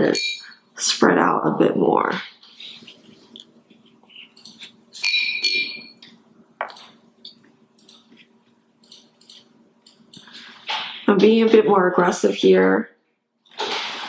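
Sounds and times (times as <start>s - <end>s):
ringing clink: 4.4s - 6.0s.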